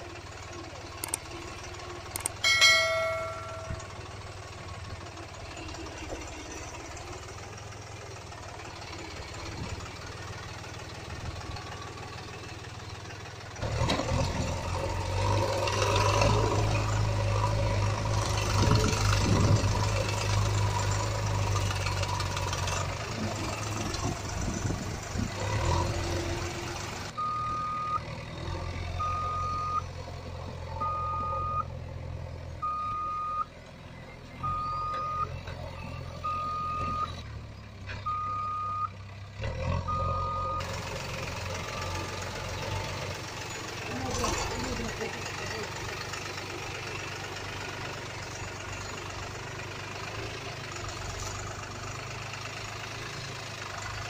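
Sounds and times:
truck engine humming: 0:00.0 - 0:54.0
reversing alarm beeps: 0:27.2 - 0:28.0, 0:29.0 - 0:29.8, 0:30.8 - 0:31.7, 0:32.6 - 0:33.5, 0:34.4 - 0:35.3, 0:36.2 - 0:37.2, 0:38.1 - 0:38.9.

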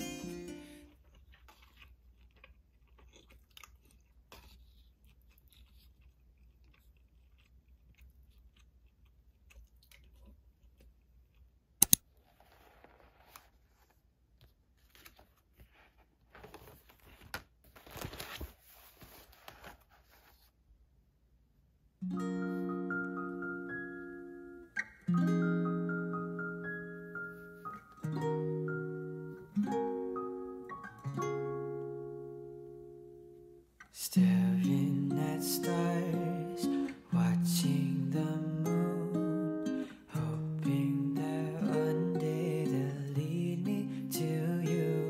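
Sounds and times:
person chewing: 0:00.8 - 0:12.0.

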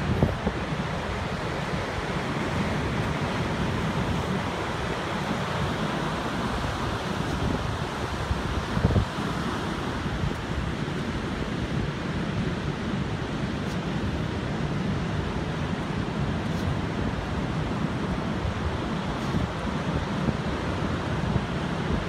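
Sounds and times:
ocean surf breaking: 0:00.0 - 0:22.0
wind buffeting microphone: 0:00.0 - 0:22.0.

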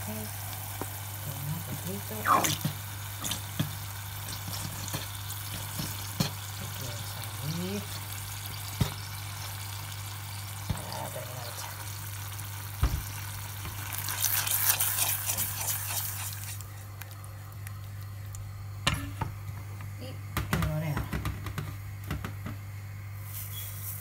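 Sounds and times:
meat sauce sizzling in a saucepan: 0:00.0 - 0:17.0.

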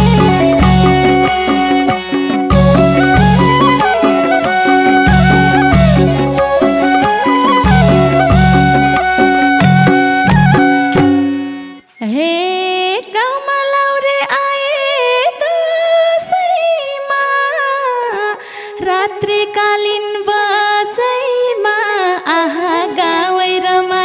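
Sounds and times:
folk band with drums and harmonium: 0:00.0 - 0:11.8
lone melody with upward slides: 0:00.0 - 0:11.8.

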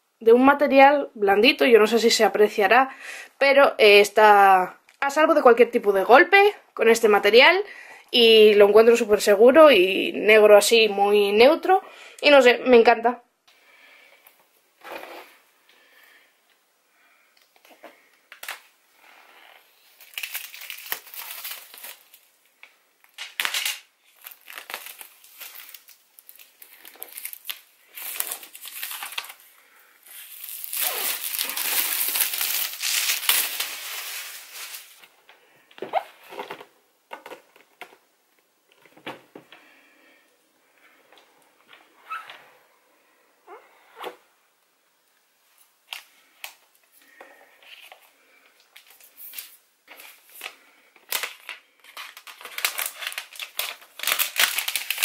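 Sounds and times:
plastic shrink wrap crinkling: 0:17.4 - 0:18.8, 0:19.4 - 0:38.0, 0:45.9 - 0:55.0.

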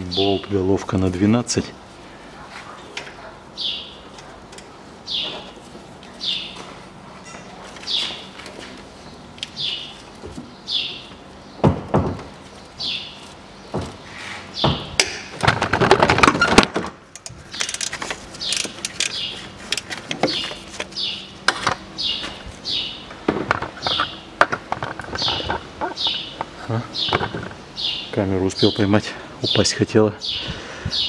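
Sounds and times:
bird chirping falling call: 0:09.6 - 0:11.6, 0:21.9 - 0:23.1, 0:25.1 - 0:28.9.

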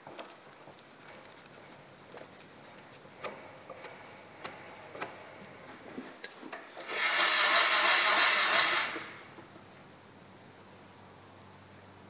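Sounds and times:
loud steady hiss: 0:06.8 - 0:12.0.

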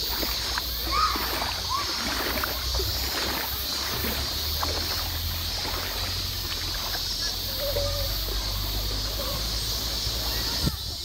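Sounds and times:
river water over pebbles: 0:00.0 - 0:11.0.

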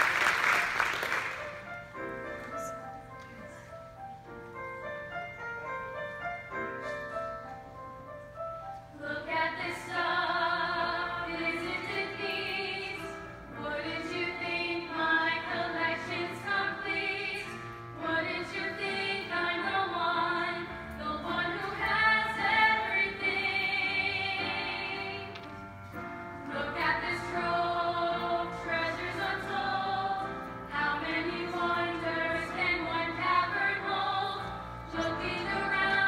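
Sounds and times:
piano accompaniment: 0:00.0 - 0:36.0
group singing: 0:09.0 - 0:25.3, 0:26.5 - 0:36.0.

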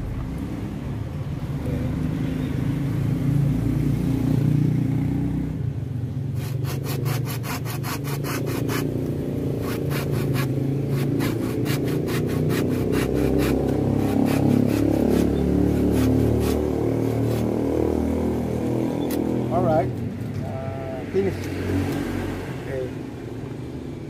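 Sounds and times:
hand saw cutting stem: 0:06.4 - 0:17.7.

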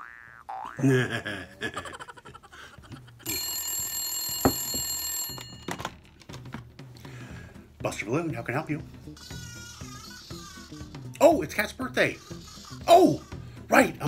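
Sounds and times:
telephone ringing: 0:03.2 - 0:06.1.

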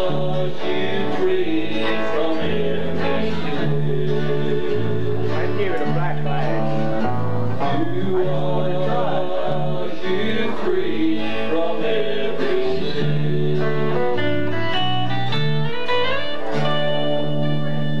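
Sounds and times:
person singing: 0:00.0 - 0:07.0, 0:07.6 - 0:14.5
bass notes: 0:00.0 - 0:18.0
strummed acoustic guitars: 0:00.0 - 0:18.0.

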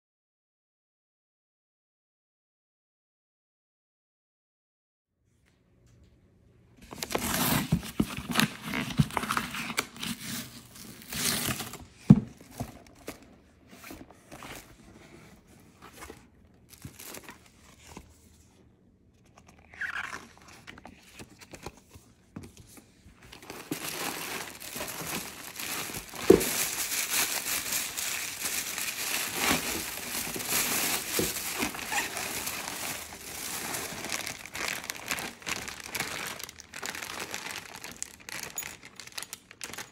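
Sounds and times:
tissue paper and plastic crinkling: 0:06.9 - 0:18.2, 0:19.8 - 0:39.9
paper rustling: 0:19.2 - 0:39.9.

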